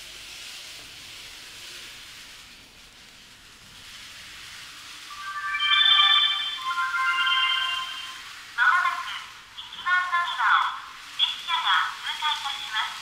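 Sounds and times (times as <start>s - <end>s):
steady hiss: 0.0s - 13.0s
electronic chime melody: 5.1s - 8.3s.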